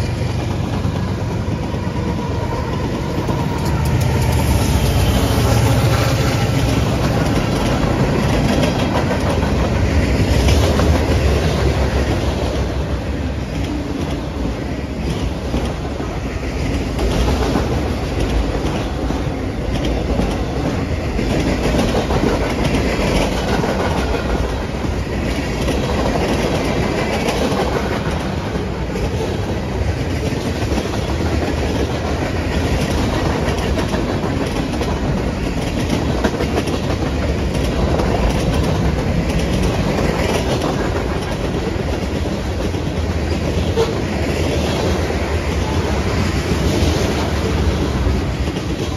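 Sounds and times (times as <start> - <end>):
train wheels rolling on rails: 0.0 - 48.9.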